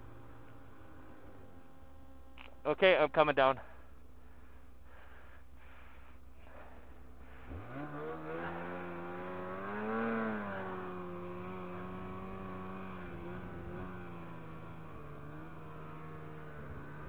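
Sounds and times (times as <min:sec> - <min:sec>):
snowmobile engine revving: 0:05.7 - 0:17.0.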